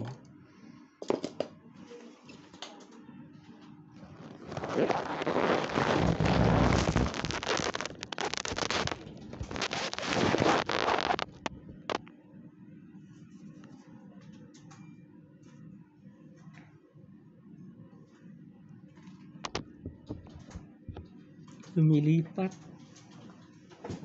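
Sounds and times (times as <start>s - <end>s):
crackling handling noise: 3.6s - 12.1s.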